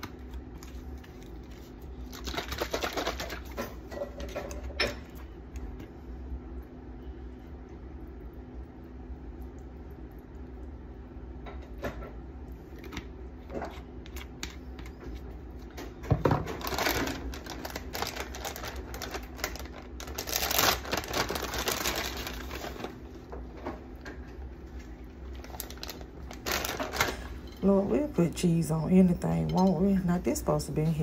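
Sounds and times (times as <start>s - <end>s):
plastic bag crinkling: 0.0s - 3.8s, 16.4s - 23.3s, 25.2s - 27.7s.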